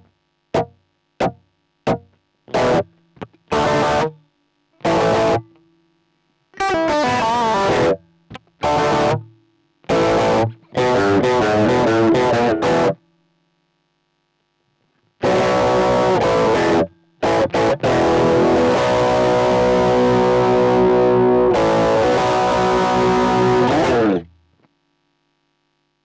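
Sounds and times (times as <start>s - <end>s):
distorted electric guitar chords: 0.0s - 4.2s, 4.8s - 5.5s, 6.6s - 13.0s, 15.2s - 24.4s.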